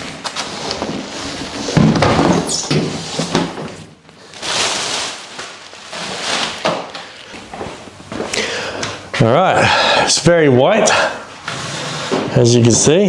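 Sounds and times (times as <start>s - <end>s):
plastic bag rustling and crinkling: 0.0s - 7.8s.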